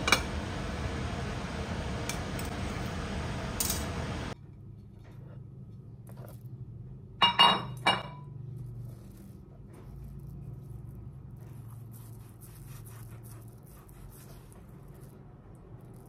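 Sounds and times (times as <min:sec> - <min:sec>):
crockery clinking: 0:07.2 - 0:08.3.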